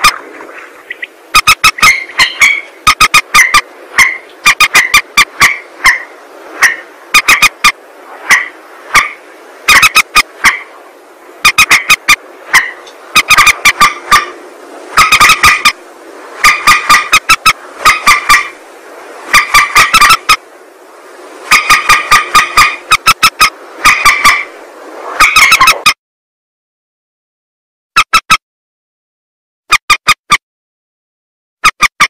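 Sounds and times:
rail bird calling: 0.0s - 20.5s, 21.3s - 26.0s
steady hiss: 0.0s - 25.9s.

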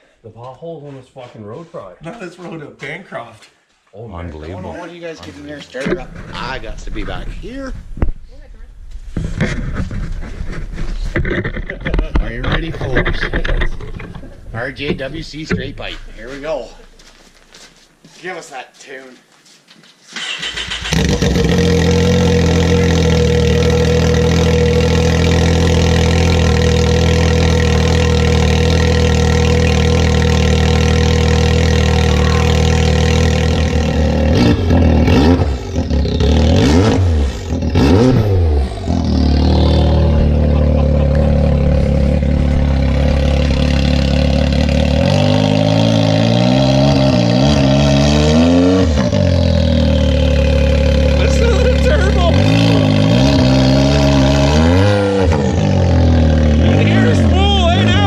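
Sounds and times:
engine idling and revving: 5.8s - 8.0s, 20.2s - 58.0s.

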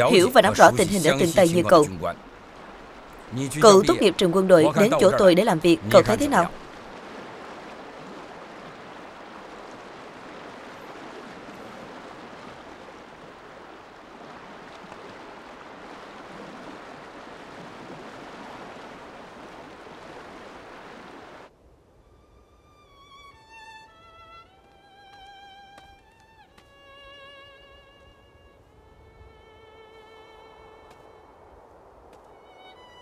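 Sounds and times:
river water rushing over rapids: 0.0s - 21.5s.

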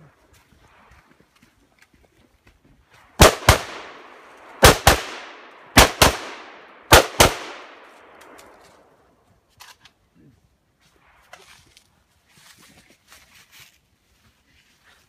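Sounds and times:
rifle shots echoing: 3.2s - 8.6s.

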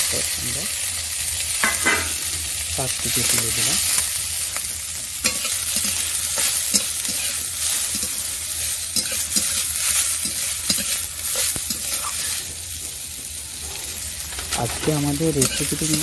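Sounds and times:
greens sizzling in hot oil: 0.0s - 16.0s
metal spatula scraping pan: 13.6s - 16.0s.

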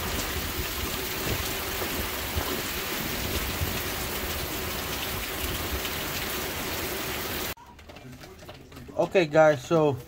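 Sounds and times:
steady rain hiss: 0.0s - 7.6s
scattered raindrops: 0.0s - 10.0s.

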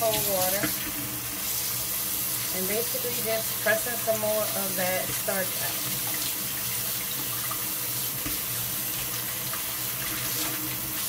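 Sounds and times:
tap running into bowl: 7.1s - 10.7s.

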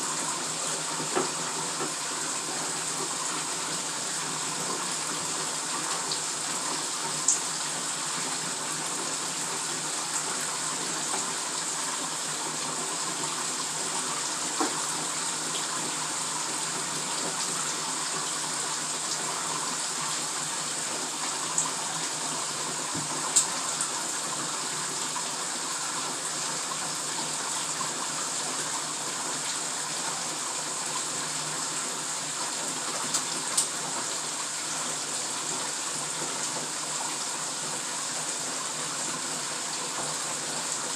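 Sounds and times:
running water filling a bathtub: 0.0s - 40.9s.

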